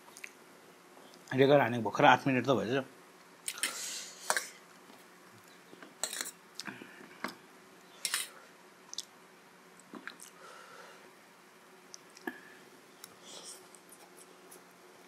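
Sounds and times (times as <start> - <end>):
fork clinking on metal plate: 6.0 - 6.4.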